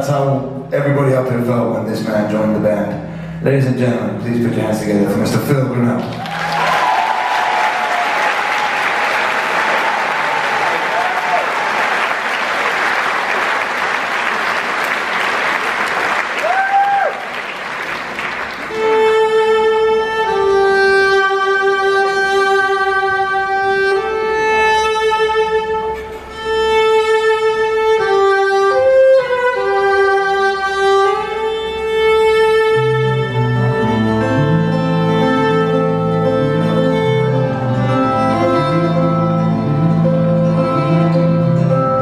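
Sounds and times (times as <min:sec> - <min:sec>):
audience applauding: 0:06.0 - 0:19.0
solo violin slow melody: 0:18.6 - 0:42.0.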